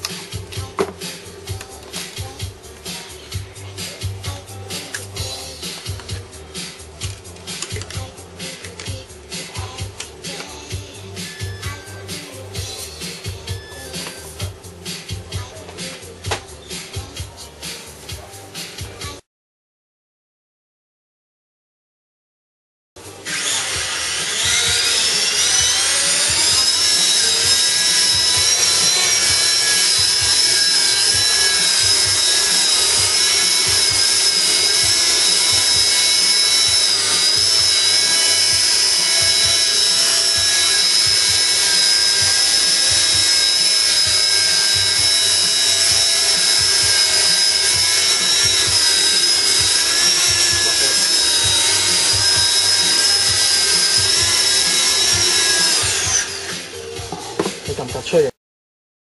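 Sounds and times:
rc helicopter motor whining: 23.2 - 56.8.

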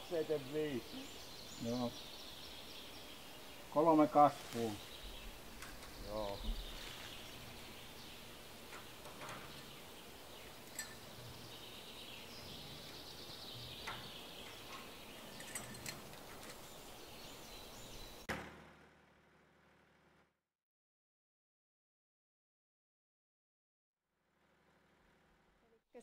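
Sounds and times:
forest ambience hiss: 0.0 - 18.3.

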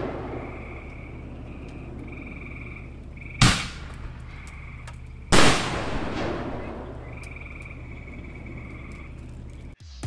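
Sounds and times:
loud firework bangs with echo: 0.0 - 0.8, 3.4 - 4.4, 5.3 - 7.1
frogs trilling: 0.2 - 5.4, 6.4 - 9.8.

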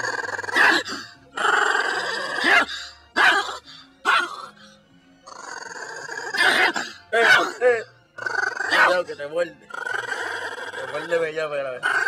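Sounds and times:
dog snarling: 0.0 - 12.0
small dog barking: 0.2 - 1.0, 1.7 - 4.6, 6.2 - 7.6, 8.2 - 9.1.

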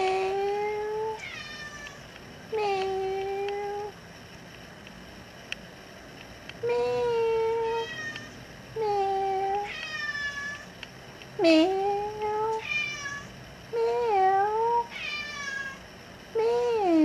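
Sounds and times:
cat meowing: 0.0 - 2.0, 6.6 - 10.7, 11.4 - 13.3, 13.9 - 15.8.

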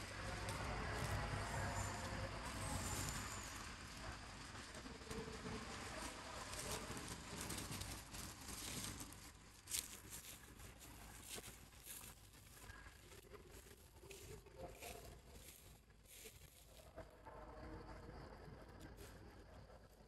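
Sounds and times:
dry leaves rustling and crackling: 0.0 - 16.9.

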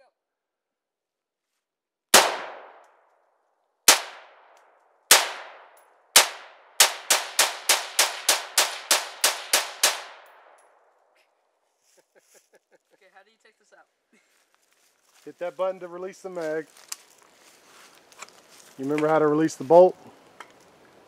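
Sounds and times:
rifle shots with echo: 2.1 - 2.9, 3.9 - 10.8.

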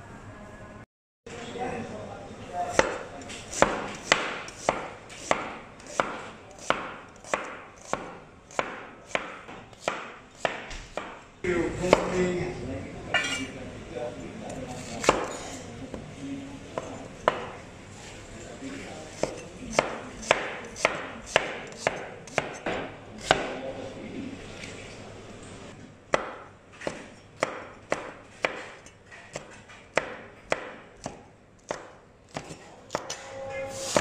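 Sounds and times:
cleaver chopping on wooden board: 2.7 - 11.2, 19.2 - 23.5, 26.1 - 33.1.

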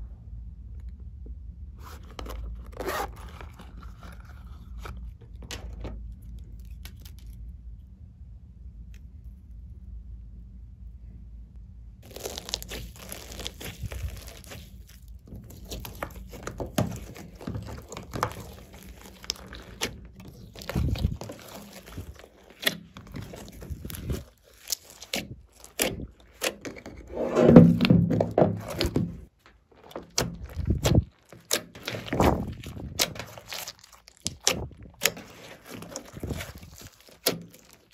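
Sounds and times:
hands squishing slime: 12.0 - 37.9.

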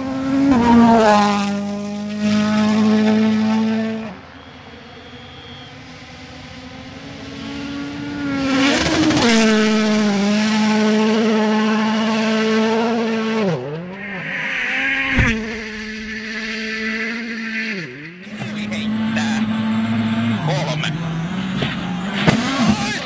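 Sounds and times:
rally car engine at high revs: 0.0 - 23.0
sharp crack: 14.5 - 16.7.

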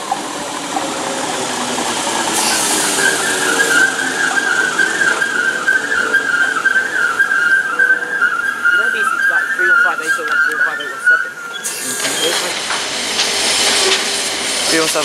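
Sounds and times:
electric train passing: 0.0 - 15.0
metallic wheel squeal: 1.7 - 12.8.

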